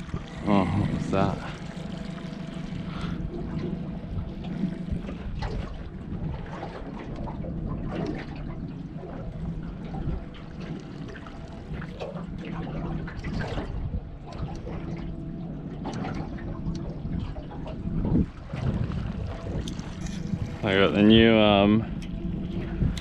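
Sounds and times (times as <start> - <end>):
steady low hum: 0.0 - 23.0
water lapping against boat hull: 0.0 - 23.0.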